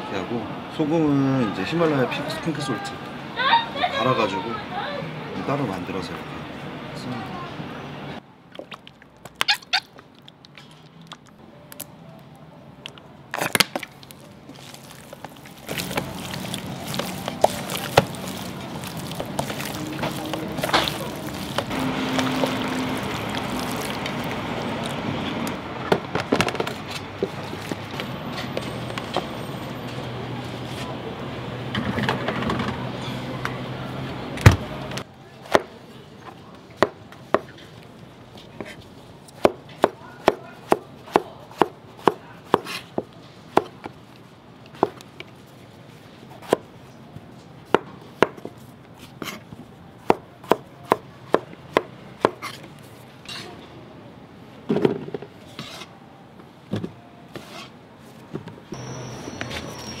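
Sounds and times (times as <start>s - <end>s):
knife chopping on wooden board: 39.4s - 42.8s.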